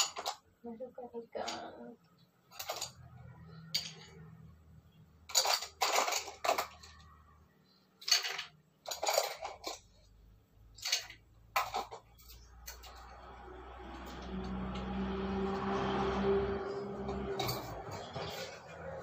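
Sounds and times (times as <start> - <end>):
metal utensil scraping a bowl: 16.1 - 19.0.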